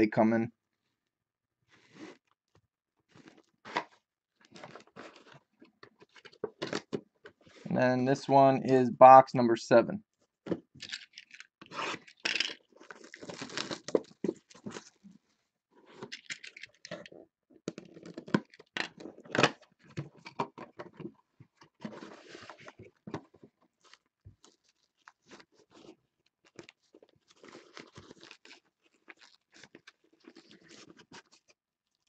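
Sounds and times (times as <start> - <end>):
cardboard box opening: 12.8 - 15.0.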